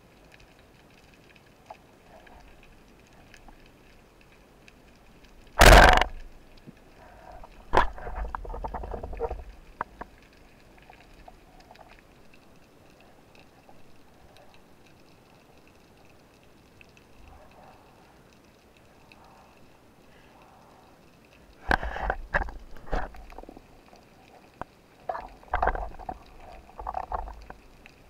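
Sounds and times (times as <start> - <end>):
knocks underwater: 5.6 - 6.2
speargun click underwater: 5.6 - 6.3
faint underwater hiss: 9.4 - 28.0.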